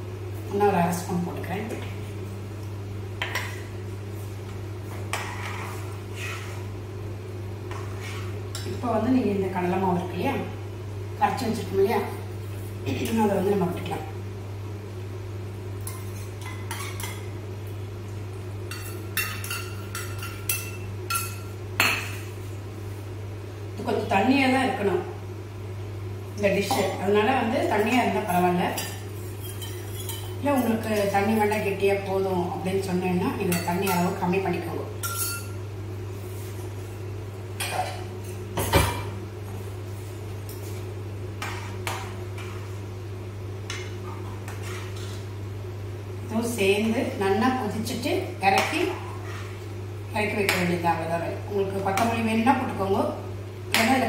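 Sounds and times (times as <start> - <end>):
steady low hum: 0.0 - 54.0
spoon clinking and scraping steel bowl: 28.8 - 31.1, 35.0 - 35.6.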